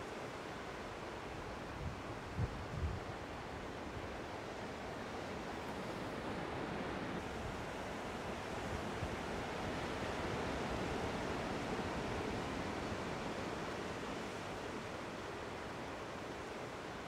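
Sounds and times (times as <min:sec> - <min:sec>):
ocean waves washing: 0:03.4 - 0:17.0.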